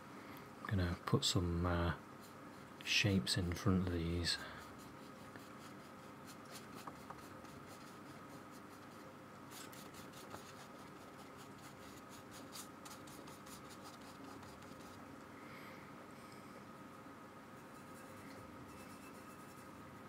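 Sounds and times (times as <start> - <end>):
faint steady hum: 0.0 - 20.0
scratchy brush strokes on paper: 4.1 - 15.0, 17.6 - 19.8.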